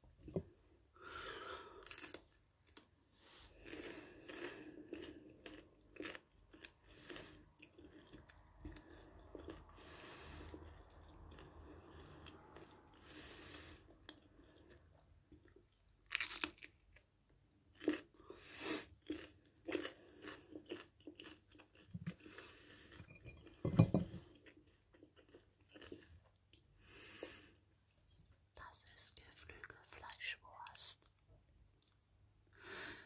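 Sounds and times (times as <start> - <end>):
crunching and chewing bell pepper: 1.2 - 2.9, 3.5 - 26.7.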